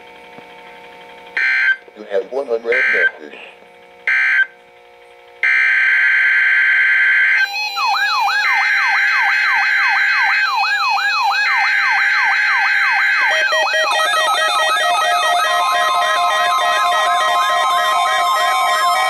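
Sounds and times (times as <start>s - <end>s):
steady high alarm tone: 1.4s - 1.8s, 2.6s - 3.3s, 4.0s - 4.5s, 5.4s - 19.0s
warbling siren-like sweep: 5.5s - 19.0s.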